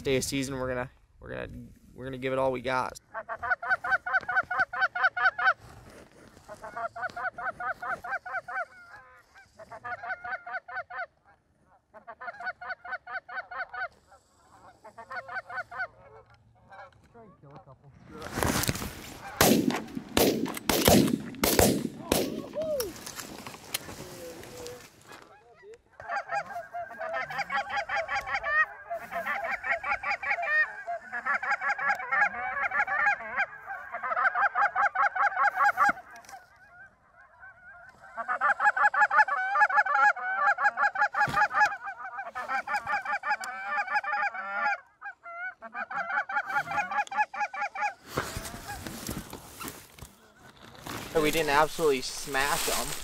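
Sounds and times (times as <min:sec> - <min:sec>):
goose honking: 0:06.4 - 0:17.0, 0:19.1 - 0:19.4, 0:25.2 - 0:49.1.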